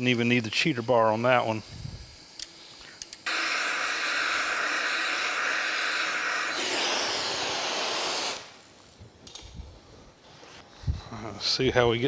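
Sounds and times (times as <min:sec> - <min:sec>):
torch flame hissing: 0:00.0 - 0:08.9.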